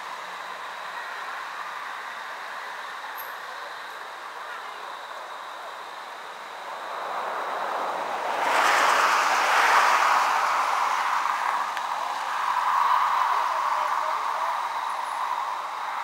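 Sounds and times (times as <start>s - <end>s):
background traffic hiss: 0.0s - 16.0s
vehicle passing on road: 5.7s - 16.0s.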